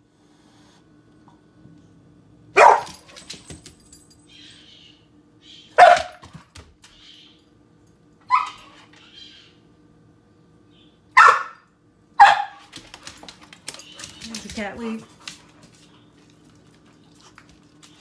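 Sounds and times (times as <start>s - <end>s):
large dog barking: 2.6s - 3.0s, 5.8s - 6.2s, 11.2s - 11.6s, 12.2s - 12.6s.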